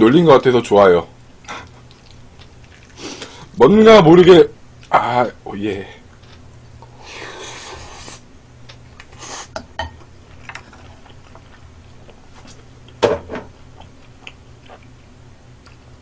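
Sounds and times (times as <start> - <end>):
person chewing: 1.4 - 3.5, 10.3 - 13.0, 13.6 - 16.0
person slurping: 6.9 - 8.2.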